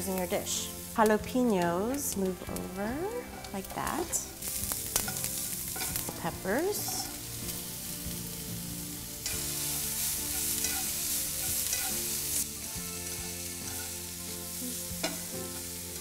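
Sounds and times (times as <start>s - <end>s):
vegetables sizzling in a skillet: 0.0s - 16.0s
spatula stirring: 2.2s - 7.3s, 9.2s - 12.1s, 13.0s - 14.0s.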